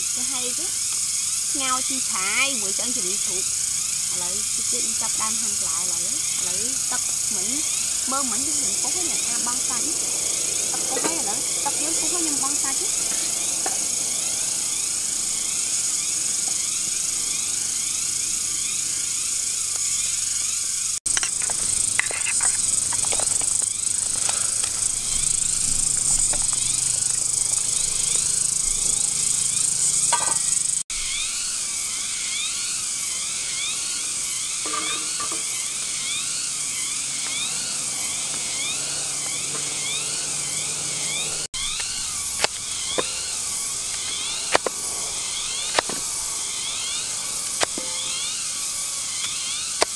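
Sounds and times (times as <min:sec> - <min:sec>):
forest insects buzzing: 0:00.0 - 0:49.9
cooking utensils clinking: 0:30.0 - 0:30.5, 0:34.6 - 0:35.6.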